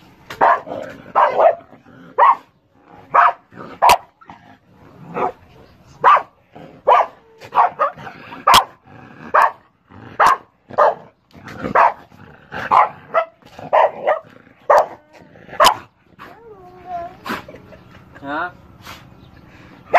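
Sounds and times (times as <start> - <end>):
dog barking: 0.4 - 1.6, 2.2 - 2.5, 3.1 - 4.1, 6.0 - 9.6, 10.2 - 11.1, 11.7 - 12.0, 12.7 - 15.0, 15.6 - 15.8.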